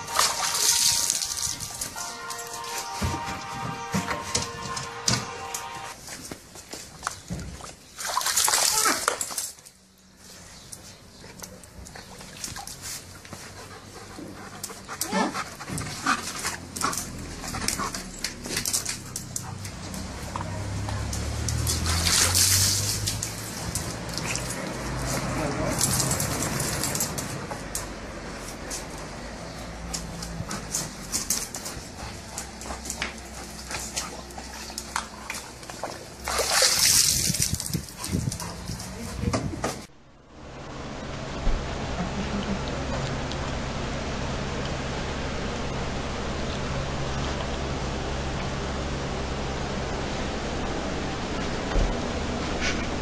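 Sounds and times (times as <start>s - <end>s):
dog splashing water in bucket: 0.0s - 5.2s, 7.0s - 9.8s, 11.5s - 39.9s
dog panting: 12.0s - 20.4s, 29.5s - 35.9s, 37.8s - 39.5s.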